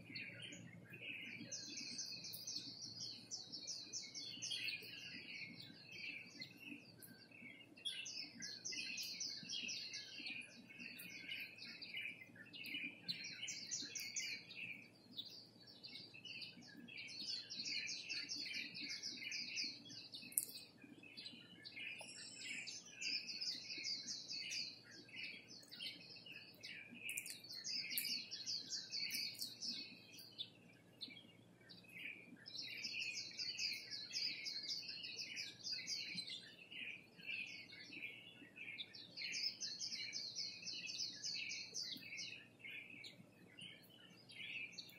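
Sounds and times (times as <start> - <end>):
small birds chirping: 0.0 - 44.9.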